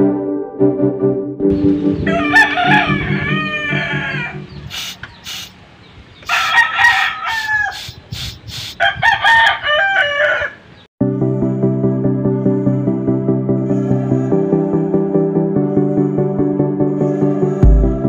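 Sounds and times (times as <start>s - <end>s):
background music: 0.0s - 4.5s, 11.0s - 18.0s
rooster crowing: 1.8s - 4.6s, 6.2s - 8.0s, 8.8s - 10.8s.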